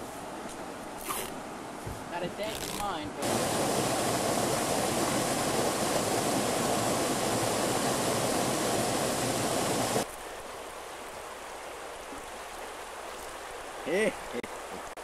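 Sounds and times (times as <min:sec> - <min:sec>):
river water rushing: 0:00.9 - 0:15.0
water rushing over cascades: 0:02.1 - 0:15.0.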